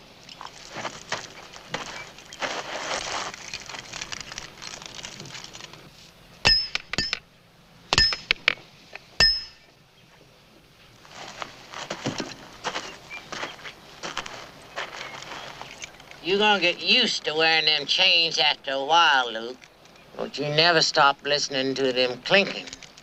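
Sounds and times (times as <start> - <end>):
hammer striking iron shackle: 6.4 - 7.3, 7.9 - 8.6, 9.2 - 9.7.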